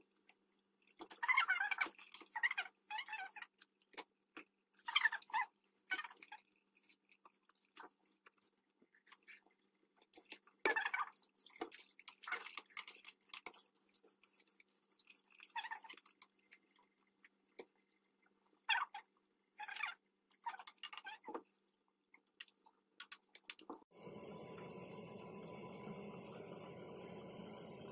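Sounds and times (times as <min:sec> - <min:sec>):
faint steady hum: 0:23.9 - 0:27.9.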